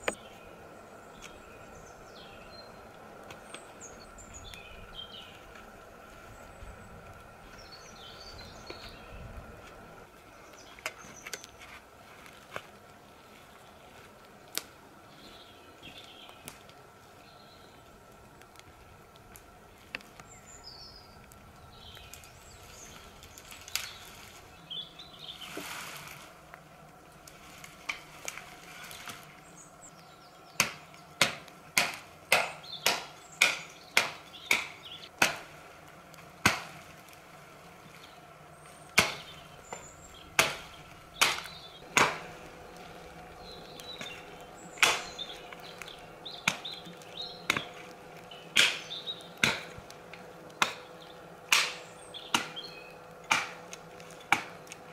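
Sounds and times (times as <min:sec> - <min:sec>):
rustling: 0:21.4 - 0:29.6
axe chopping wood: 0:30.6 - 0:35.5, 0:36.4 - 0:36.8, 0:39.0 - 0:39.3, 0:40.4 - 0:42.3, 0:44.8 - 0:45.2, 0:46.4 - 0:46.7, 0:47.4 - 0:47.8, 0:48.5 - 0:49.8, 0:50.6 - 0:50.9, 0:51.5 - 0:52.6, 0:53.2 - 0:53.7, 0:54.3 - 0:54.6.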